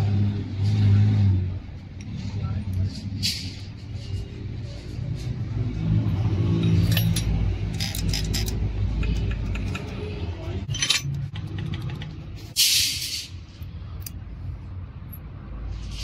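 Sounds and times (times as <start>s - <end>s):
small metal parts clinking: 6.6s - 10.0s, 10.6s - 12.0s.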